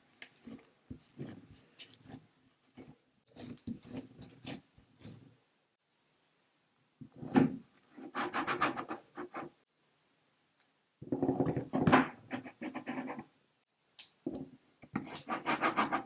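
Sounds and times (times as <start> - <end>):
dough scraper scraping wooden board: 15.0 - 16.0.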